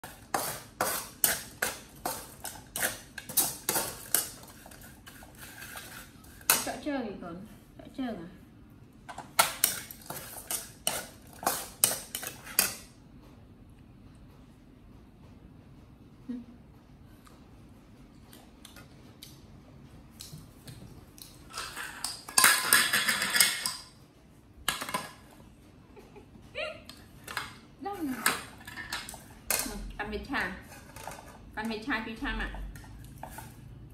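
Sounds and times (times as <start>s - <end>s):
kitchen utensils striking: 21.5s - 23.9s
kitchenware clattering and rattling: 21.5s - 23.9s, 27.2s - 29.9s, 30.6s - 31.5s.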